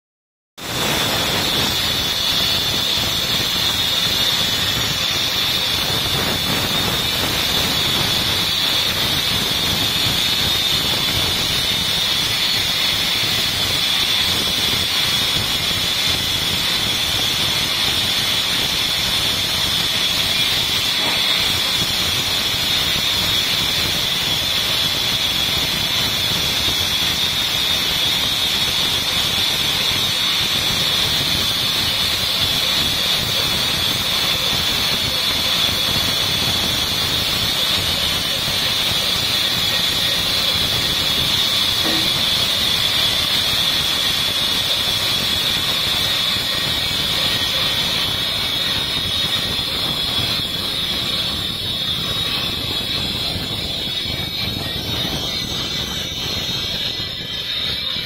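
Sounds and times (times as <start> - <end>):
power saw cutting timber: 0.8 - 58.0.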